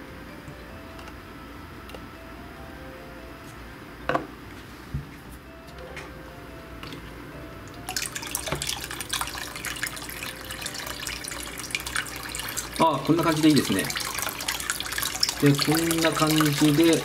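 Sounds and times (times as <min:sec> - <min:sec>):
water pouring into a basin: 0:07.9 - 0:17.0.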